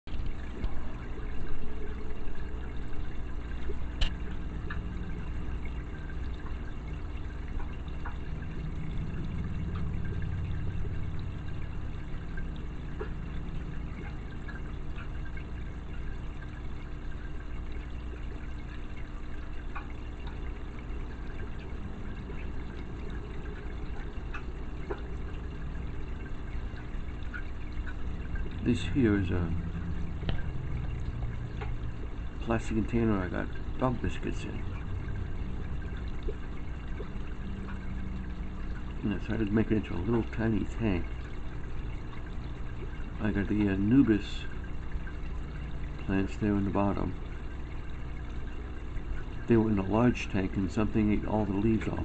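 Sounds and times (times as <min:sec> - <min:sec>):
aquarium filter water trickling: 0:00.0 - 0:52.0.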